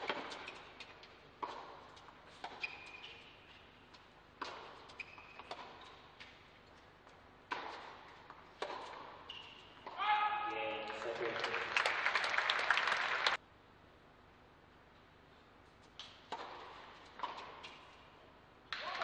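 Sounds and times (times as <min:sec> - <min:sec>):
tennis ball bouncing: 0:00.0 - 0:10.1, 0:16.0 - 0:17.9
shoe squeaks on court: 0:02.3 - 0:03.8, 0:04.4 - 0:06.4, 0:08.7 - 0:09.9
racquet striking ball: 0:07.4 - 0:10.1.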